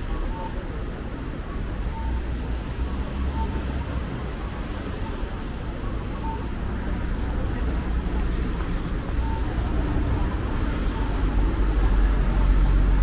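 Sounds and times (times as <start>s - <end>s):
faint short beep: 0.0s - 4.0s, 4.8s - 6.6s, 9.2s - 9.8s
traffic rumble: 0.0s - 13.0s
voices of passers-by: 0.0s - 13.0s.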